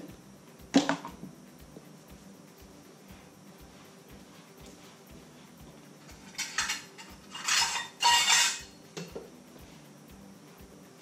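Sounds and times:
rustling and scraping: 3.1s - 8.7s.

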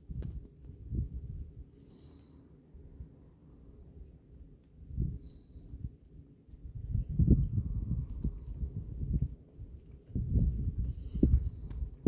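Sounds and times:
wind buffeting microphone: 0.0s - 1.7s, 4.8s - 12.0s.

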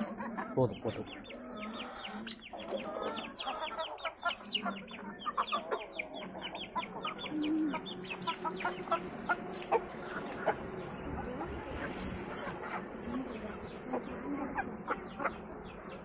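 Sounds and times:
chickens clucking: 0.0s - 16.0s.

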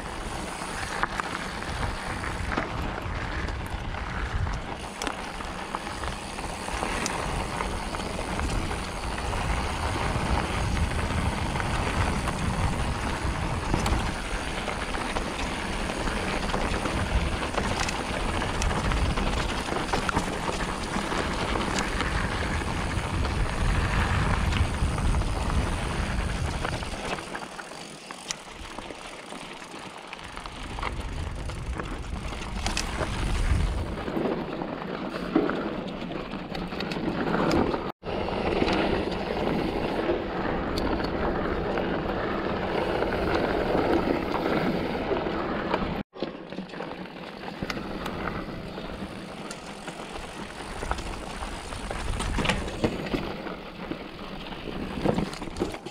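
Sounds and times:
wind buffeting microphone: 0.0s - 27.4s, 30.2s - 34.4s
bike chain and frame rattling: 0.0s - 55.9s
tyres rolling over dirt and rocks: 0.0s - 55.9s.

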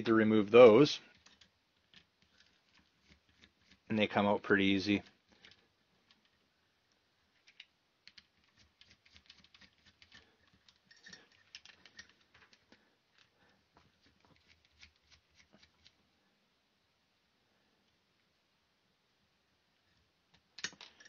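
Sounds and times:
plastic parts rattling: 7.3s - 14.9s.

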